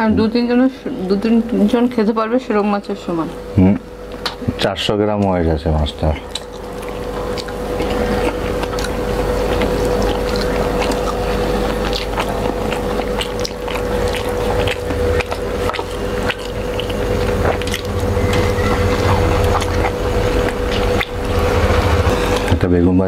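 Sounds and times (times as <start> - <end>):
low hum: 5.5 - 23.0
chewing and mouth sounds: 6.0 - 22.5.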